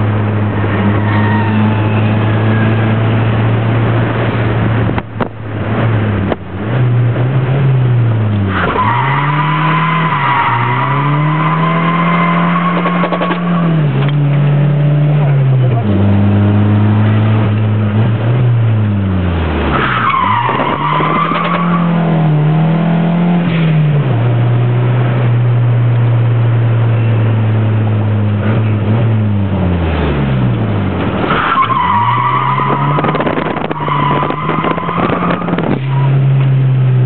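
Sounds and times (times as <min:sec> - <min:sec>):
car engine revving: 0:00.0 - 0:37.0
tyre squeal: 0:00.8 - 0:03.2.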